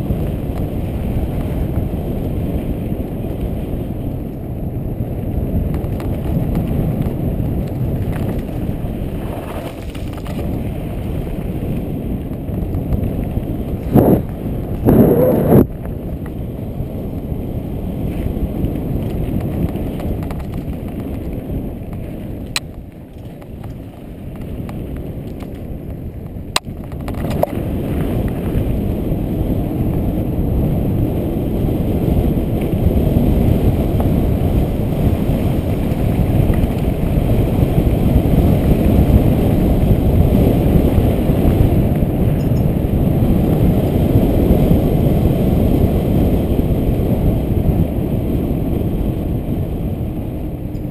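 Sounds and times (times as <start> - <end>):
bike tyres on dirt: 0.0 - 50.9
wind buffeting microphone: 0.0 - 50.9.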